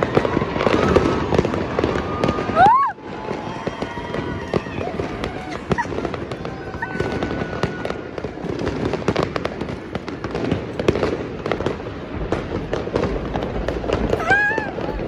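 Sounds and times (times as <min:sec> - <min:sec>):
fireworks bangs and crackles: 0:00.0 - 0:15.0.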